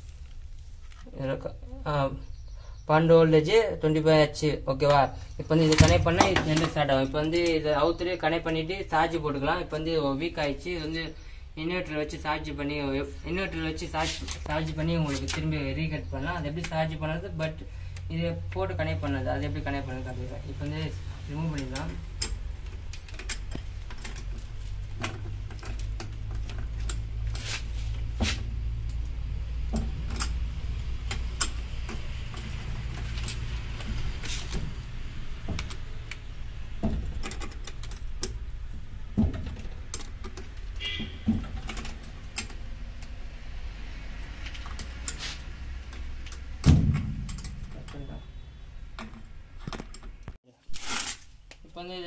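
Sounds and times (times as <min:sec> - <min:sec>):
heavier metal knock: 0:46.6 - 0:47.9.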